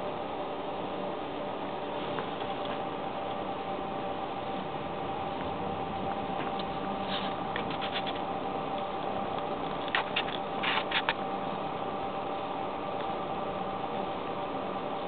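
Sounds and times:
steady low hum: 0:00.0 - 0:15.0
kitten paws kneading fur: 0:06.3 - 0:11.2.

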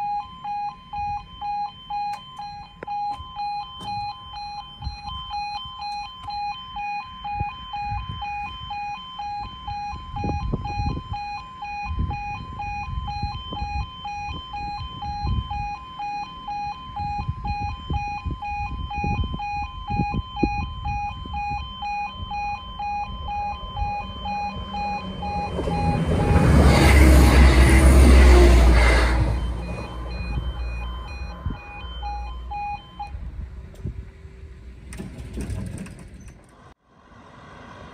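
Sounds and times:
level crossing alarm pulsing: 0:00.0 - 0:33.2
wind buffeting microphone: 0:07.2 - 0:15.9, 0:16.6 - 0:36.2
approaching train: 0:24.1 - 0:32.1, 0:36.9 - 0:37.9.

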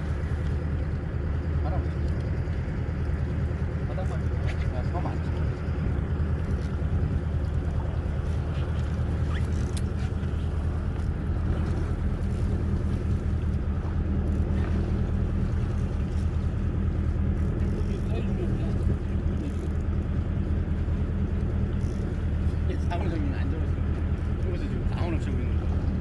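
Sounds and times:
boat engine idling: 0:00.0 - 0:26.0
faint ticks: 0:01.9 - 0:03.0, 0:08.5 - 0:11.8.

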